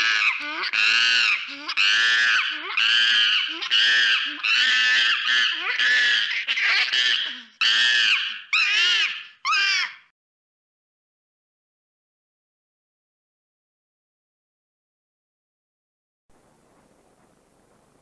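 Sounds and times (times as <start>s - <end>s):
monkey screaming: 0.0s - 10.1s.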